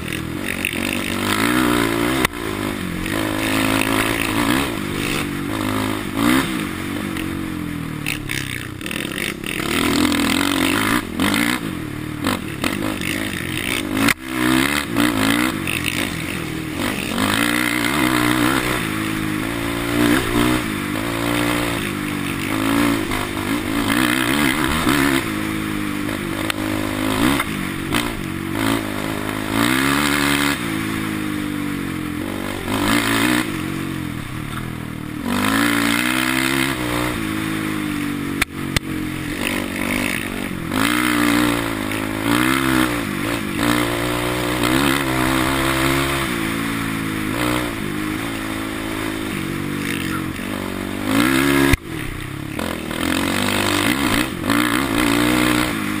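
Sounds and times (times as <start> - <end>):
quad engine revving: 0.0 - 56.0.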